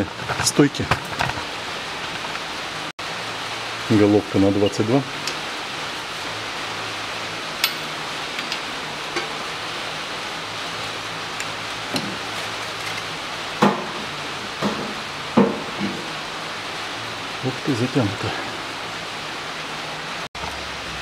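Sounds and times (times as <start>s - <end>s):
steady hiss: 0.0s - 21.0s
wrench clinking on metal: 7.6s - 8.7s.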